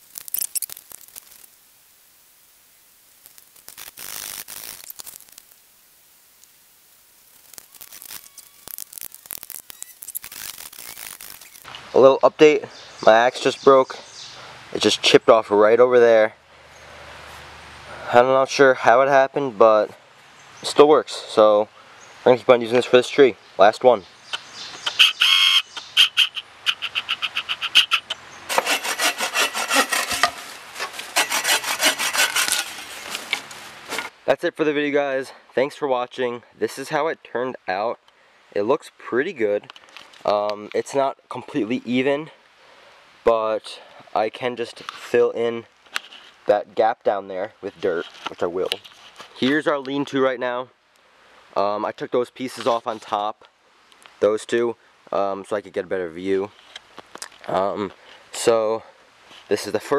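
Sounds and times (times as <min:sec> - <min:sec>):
scraping and rustling in leaves: 0:00.0 - 0:01.6, 0:03.2 - 0:05.6, 0:07.2 - 0:11.8, 0:28.5 - 0:34.2
hand saw cutting wood: 0:26.8 - 0:34.1.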